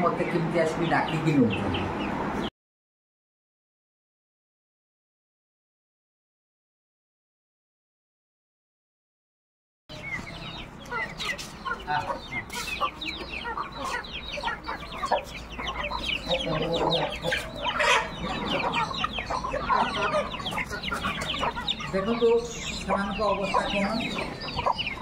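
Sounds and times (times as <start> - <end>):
chickens clucking: 0.0 - 2.5, 9.9 - 25.0.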